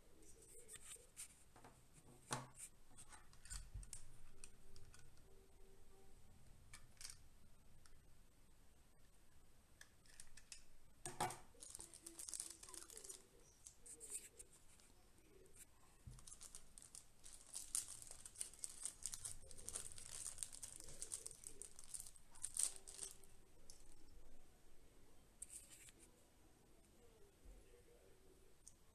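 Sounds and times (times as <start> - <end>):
plastic bags crinkling: 11.5 - 13.9, 16.1 - 23.9.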